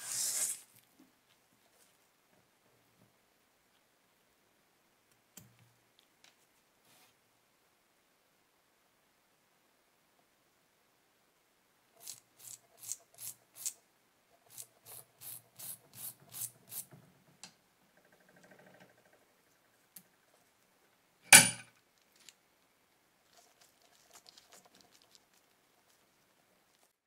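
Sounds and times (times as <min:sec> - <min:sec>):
sharp knock: 0:21.3 - 0:21.7.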